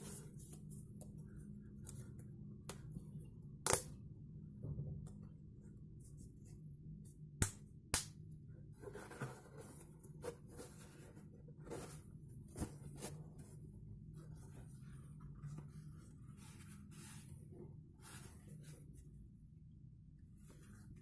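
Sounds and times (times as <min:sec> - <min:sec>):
low steady hum: 0:00.0 - 0:21.0
fabric cap rustling: 0:08.9 - 0:19.4.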